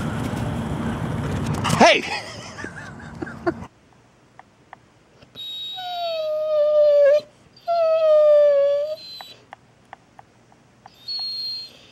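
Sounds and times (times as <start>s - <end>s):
dog whining: 5.3s - 9.5s, 10.9s - 11.9s.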